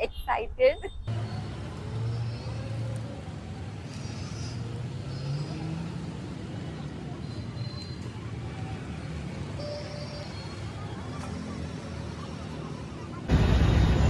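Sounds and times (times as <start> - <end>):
road traffic rumble: 0.0 - 14.0
distant vehicle horns: 9.2 - 11.4.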